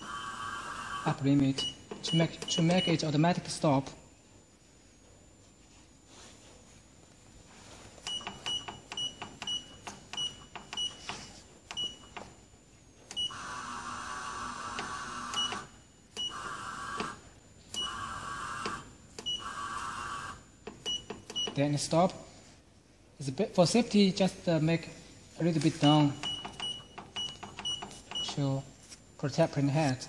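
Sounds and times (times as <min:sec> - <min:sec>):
printer motor whirring: 0:00.0 - 0:02.8, 0:13.0 - 0:21.4
short keypad beeps: 0:01.4 - 0:03.3, 0:08.1 - 0:11.1, 0:15.3 - 0:16.4, 0:20.8 - 0:21.6, 0:25.7 - 0:28.5.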